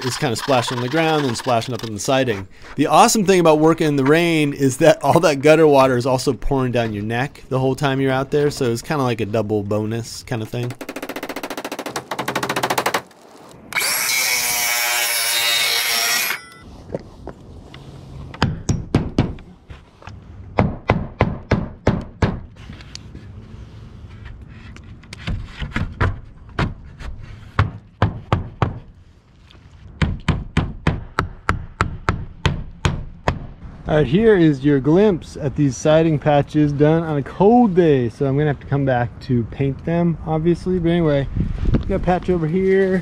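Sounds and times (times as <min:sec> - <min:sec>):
power saw cutting: 0:00.0 - 0:02.4, 0:13.7 - 0:16.6
hammer driving nails into wood: 0:10.7 - 0:13.0.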